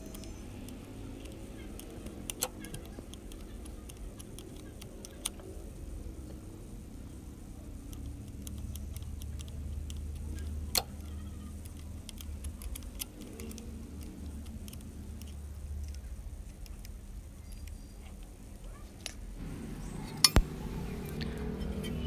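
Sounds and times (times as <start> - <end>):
spanner clicking on metal: 0.0 - 5.5.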